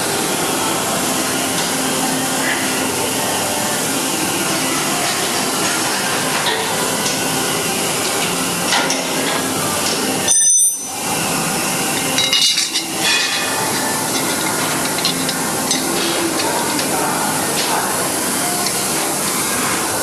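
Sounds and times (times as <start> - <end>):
workshop machinery noise: 0.0 - 20.0
metal tools clinking: 10.2 - 11.0, 11.9 - 17.0.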